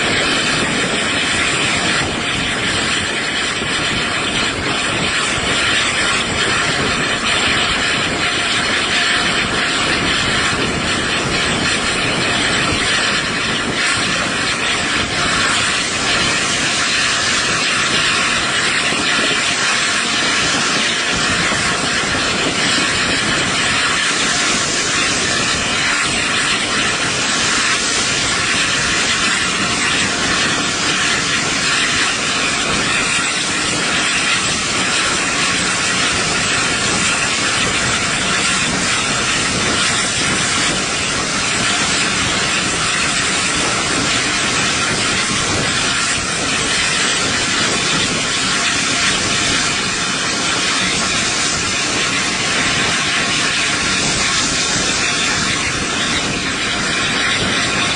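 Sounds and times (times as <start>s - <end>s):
rushing hiss of steam and air: 0.0s - 57.9s.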